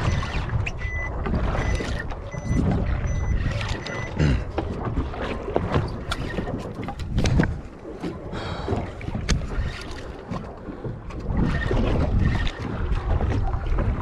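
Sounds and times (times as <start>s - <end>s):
water lapping against boat: 0.0s - 14.0s
wind buffeting microphone: 4.4s - 14.0s
knocks and clicks: 5.6s - 7.6s.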